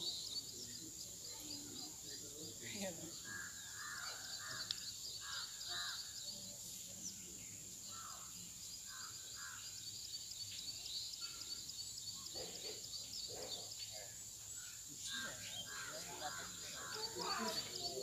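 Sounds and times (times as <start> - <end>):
crows cawing: 3.2 - 6.0, 15.1 - 17.8.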